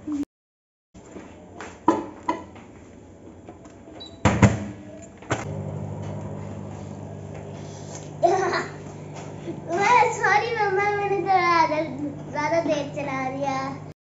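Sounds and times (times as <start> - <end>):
microwave oven humming: 3.5 - 14.0
microwave beep: 4.0 - 4.4.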